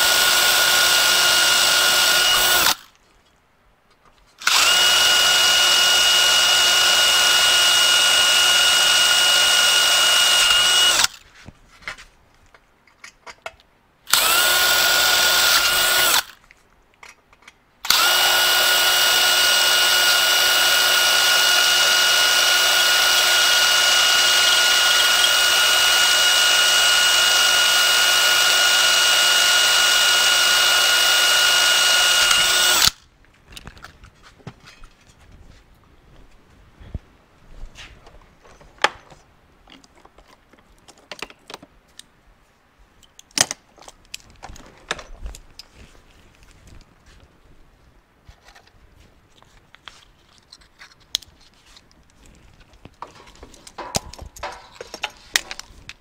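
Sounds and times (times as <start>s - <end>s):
cordless drill running: 0.0s - 2.9s, 4.4s - 11.2s, 14.1s - 16.4s, 17.9s - 33.0s.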